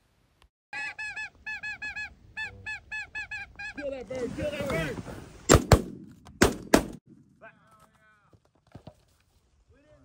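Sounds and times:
geese yelping calls: 0.8 - 4.0.

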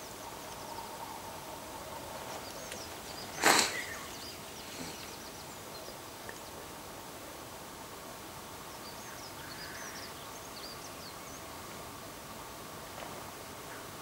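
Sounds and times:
small birds chirping: 1.9 - 6.6.

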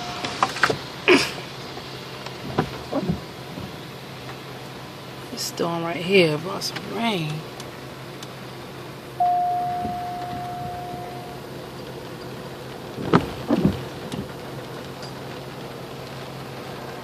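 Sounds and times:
rain hissing on car: 0.0 - 17.0
chime tone: 9.2 - 11.4
low hum: 9.2 - 11.9.

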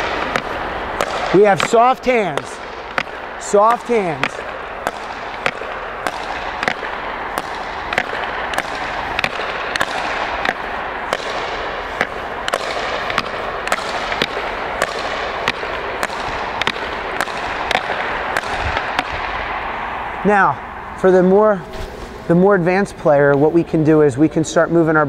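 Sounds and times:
hockey sticks clacking puck: 0.0 - 19.7
steady hiss: 0.0 - 23.8.

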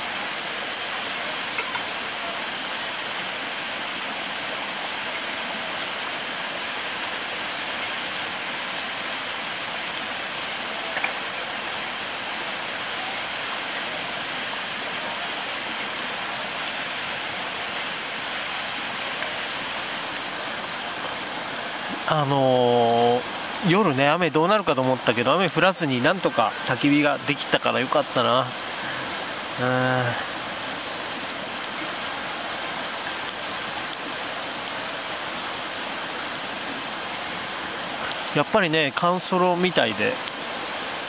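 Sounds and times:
campfire crackling: 0.0 - 41.0
fire popping: 9.6 - 40.4.

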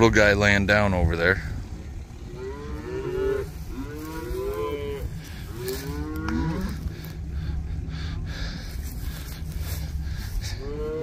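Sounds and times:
cattle mooing: 2.2 - 7.5, 9.6 - 11.0.

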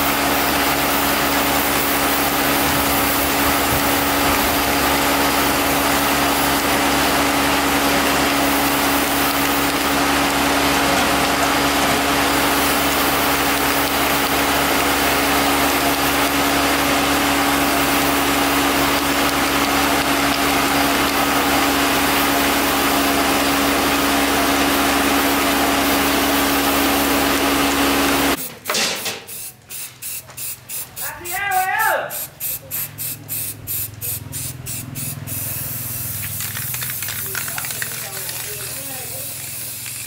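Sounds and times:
loud steady whirring hum: 0.0 - 29.3
aerosol spray can hissing: 29.3 - 31.1, 32.1 - 40.0.

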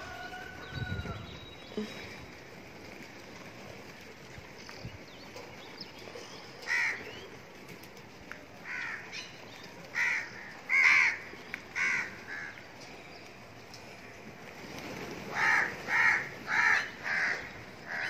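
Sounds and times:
crows cawing: 6.7 - 7.0, 8.6 - 9.1, 9.9 - 12.6, 15.3 - 18.0.

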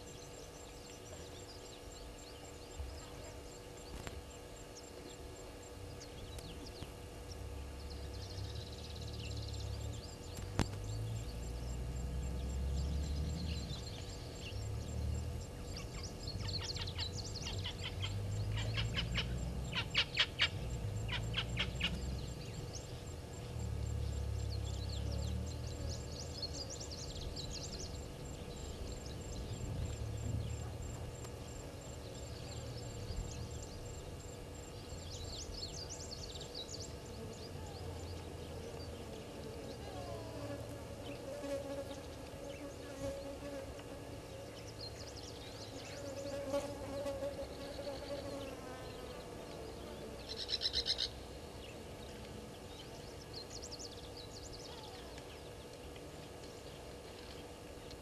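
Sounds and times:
low outdoor rumble: 0.0 - 43.0
bird chirps: 5.9 - 30.9, 50.2 - 52.2
insect buzzing: 7.8 - 51.3
bird trill: 15.6 - 23.1, 50.3 - 51.2.

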